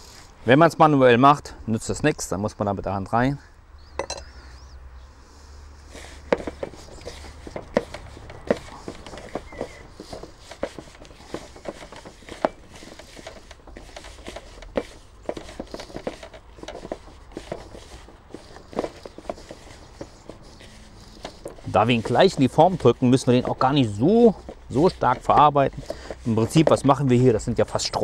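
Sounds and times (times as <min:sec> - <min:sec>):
hands kneading dough: 0:05.8 - 0:28.0.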